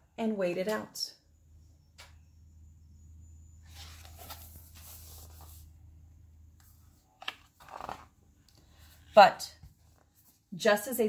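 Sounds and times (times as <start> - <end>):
book pages rustling: 3.6 - 5.8, 6.6 - 8.2, 8.8 - 10.5.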